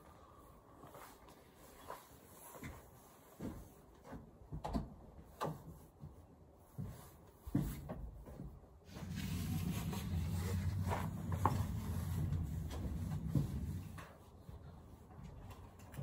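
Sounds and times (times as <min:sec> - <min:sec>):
steady low hum: 0:08.8 - 0:16.0.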